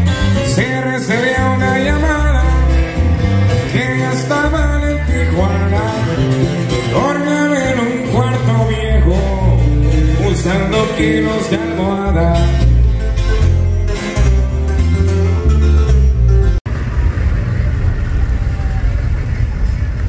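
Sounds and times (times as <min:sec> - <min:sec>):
live band playing: 0:00.0 - 0:16.6
strong bass line: 0:00.0 - 0:20.0
person singing: 0:00.1 - 0:12.8.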